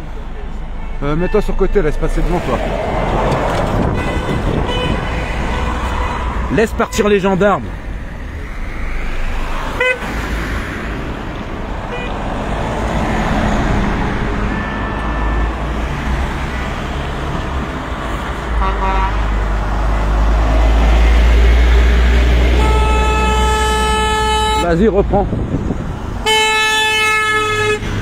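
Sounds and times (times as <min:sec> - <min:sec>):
road traffic noise: 0:00.0 - 0:28.0
car horn toots: 0:00.8 - 0:02.3, 0:03.7 - 0:07.2, 0:09.8 - 0:10.1, 0:11.9 - 0:12.2, 0:14.4 - 0:15.7, 0:18.6 - 0:19.3, 0:22.5 - 0:24.7, 0:26.2 - 0:28.0.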